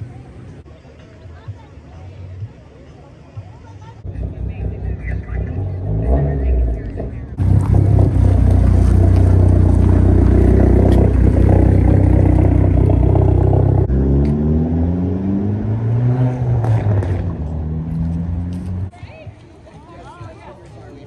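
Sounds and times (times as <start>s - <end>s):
car engine revving: 4.1s - 18.9s.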